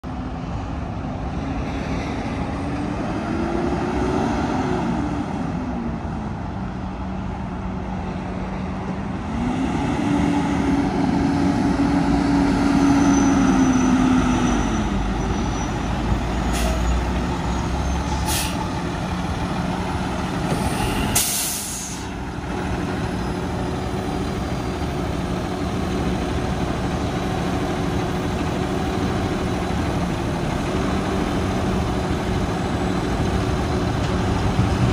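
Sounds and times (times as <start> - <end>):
diesel engine revving: 8.4 - 34.9
air brake hiss: 16.5 - 16.9, 18.2 - 18.7, 20.6 - 22.2.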